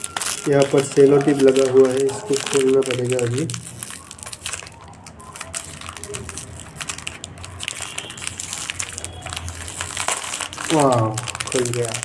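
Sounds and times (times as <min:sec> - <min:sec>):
plastic packaging crinkling: 0:00.0 - 0:12.0
tape peeling: 0:00.0 - 0:12.0.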